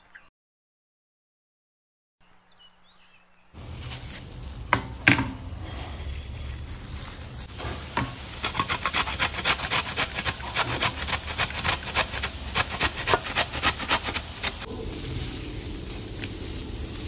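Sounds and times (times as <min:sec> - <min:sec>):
carrot rasping on metal grater: 0:08.0 - 0:14.7.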